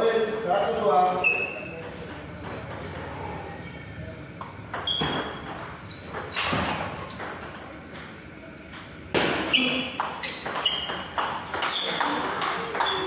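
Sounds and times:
murmur of voices: 1.0s - 4.6s
table tennis ball pings: 7.1s - 13.0s.

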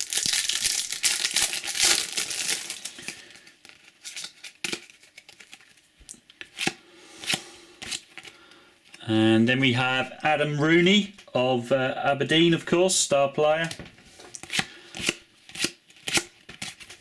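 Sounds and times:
foil wrapper crinkling and tearing: 0.0s - 5.8s
cards rustling: 0.1s - 9.0s.

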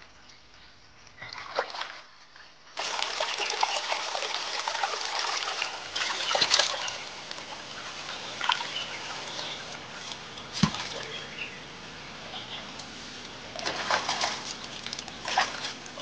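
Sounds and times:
stream running over rocks: 2.8s - 16.0s.

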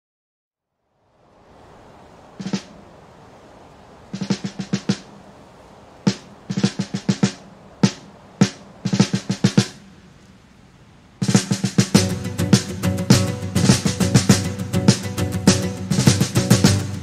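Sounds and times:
snare drum strokes: 2.4s - 2.8s, 4.1s - 5.2s, 6.1s - 9.8s, 11.2s - 17.0s.

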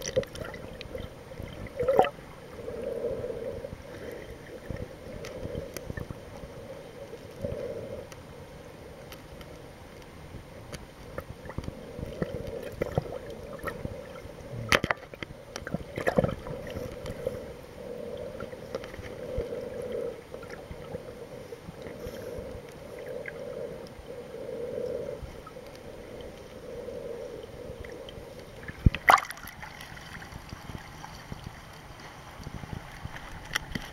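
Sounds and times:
water gurgling: 0.0s - 9.5s, 10.3s - 33.9s
muffled underwater noise: 11.5s - 28.9s.

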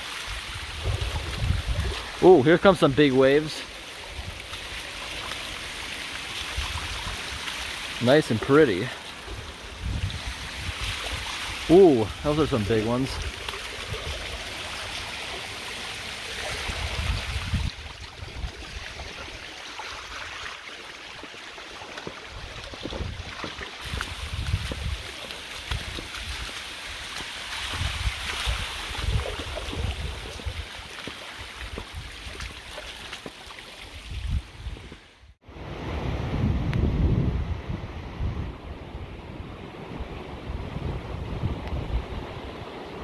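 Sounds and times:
wind rumbling on microphone: 0.0s - 3.0s, 9.2s - 19.4s, 22.2s - 27.0s, 27.6s - 32.6s, 33.9s - 43.0s
water rushing over dam: 0.0s - 34.5s.

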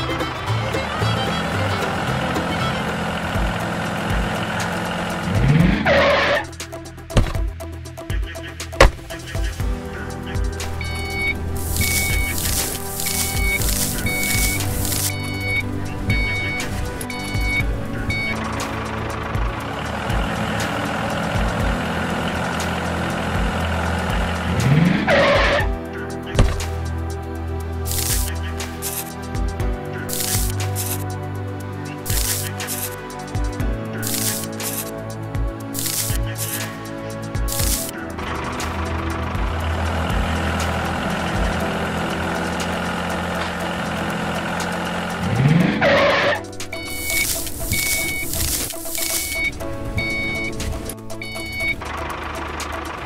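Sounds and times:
background music: 0.0s - 53.0s
tractor engine idling: 0.0s - 53.0s
rising whine: 8.8s - 29.5s, 36.6s - 53.0s
short beeps: 13.4s - 18.4s, 49.0s - 50.5s
sound rising in pitch: 37.9s - 53.0s.

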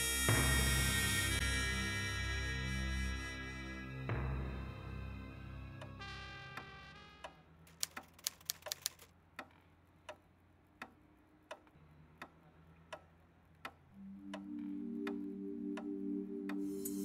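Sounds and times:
flurry of clicks: 7.7s - 10.2s
clock ticking: 10.8s - 17.0s.

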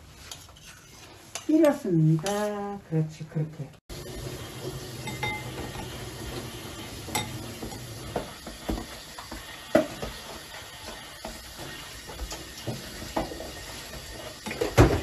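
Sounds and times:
stew simmering with hiss and bubble: 3.9s - 15.0s
utensils clinking against pot: 5.0s - 6.0s, 7.0s - 8.9s, 12.1s - 15.0s.

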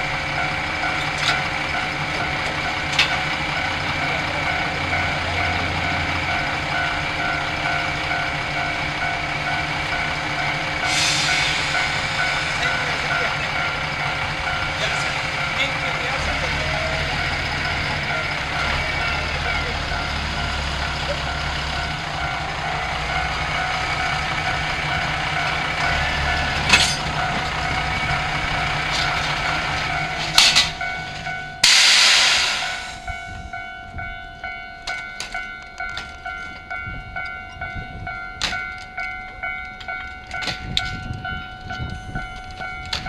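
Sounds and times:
diesel railcars idling: 0.0s - 43.0s
loud hiss of air: 10.8s - 12.6s, 31.6s - 33.1s.

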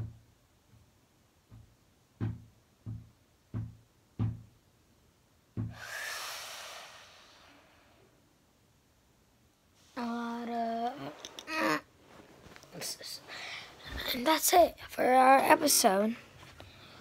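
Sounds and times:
beatbox hissing cymbal sound: 5.7s - 7.6s.

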